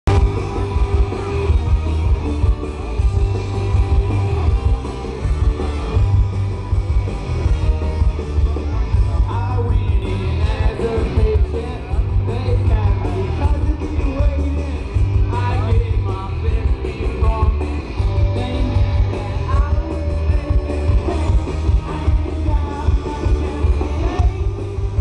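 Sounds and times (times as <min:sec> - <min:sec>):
live rock band: 0:00.1 - 0:25.0
person singing: 0:09.1 - 0:25.0.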